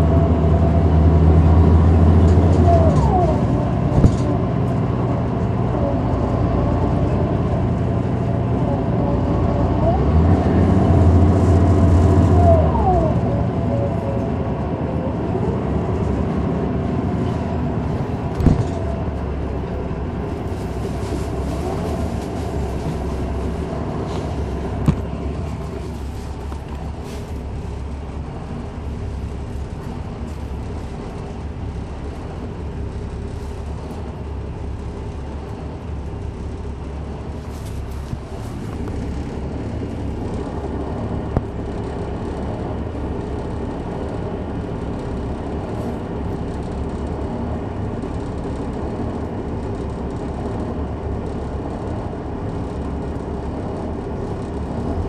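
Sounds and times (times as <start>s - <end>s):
bus engine humming: 0.0s - 55.0s
bus body knocks: 18.4s - 19.0s.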